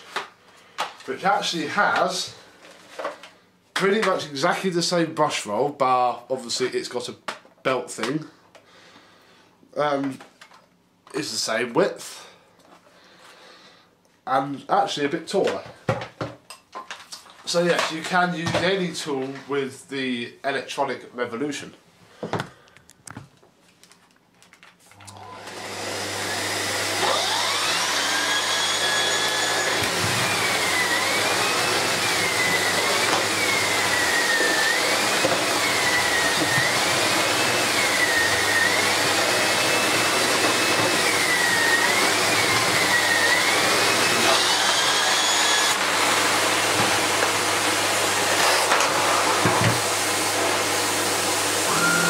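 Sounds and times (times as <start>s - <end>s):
vacuum cleaner running: 24.9s - 52.0s
vacuum brush roll whine: 25.0s - 52.0s.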